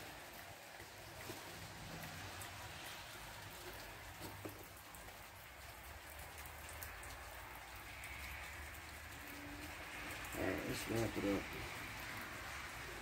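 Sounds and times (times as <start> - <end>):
light rain patter: 0.0 - 13.0
raindrop ticks: 0.0 - 13.0.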